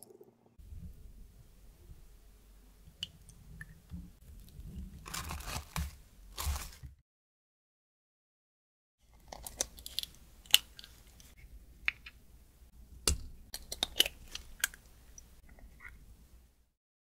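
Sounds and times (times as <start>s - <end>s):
eggshells cracking: 9.2s - 12.1s, 13.1s - 14.9s.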